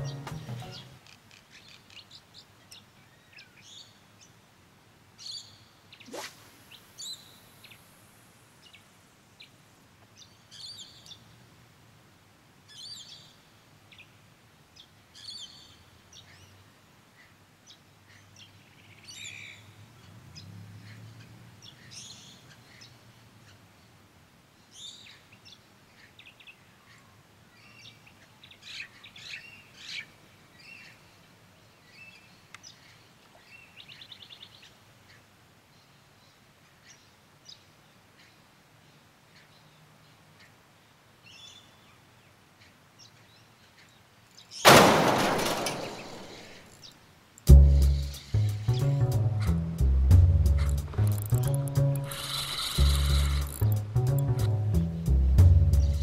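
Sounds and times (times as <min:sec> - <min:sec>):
small birds chirping: 0:00.0 - 0:04.4, 0:05.2 - 0:07.9, 0:08.6 - 0:11.4, 0:12.7 - 0:24.0, 0:24.6 - 0:44.7, 0:45.6 - 0:49.6, 0:50.4 - 0:54.5, 0:55.5 - 0:56.0
fishing cast swish: 0:06.0 - 0:06.8.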